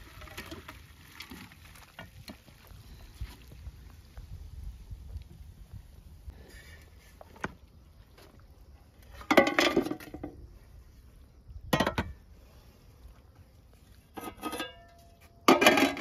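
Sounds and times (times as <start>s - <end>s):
colander clattering against metal pot: 9.2s - 10.3s, 14.2s - 14.9s, 15.5s - 16.0s.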